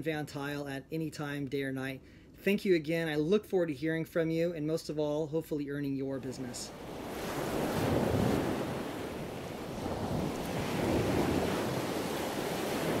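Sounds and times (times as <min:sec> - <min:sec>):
ocean waves washing: 0:06.2 - 0:13.0.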